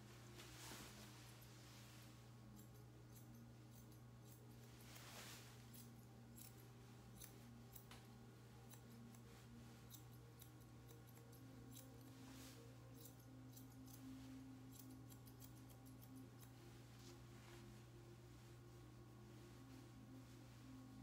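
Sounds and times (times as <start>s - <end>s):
steady low hum: 0.0s - 21.0s
grooming scissors snipping: 2.5s - 5.0s, 5.6s - 16.6s.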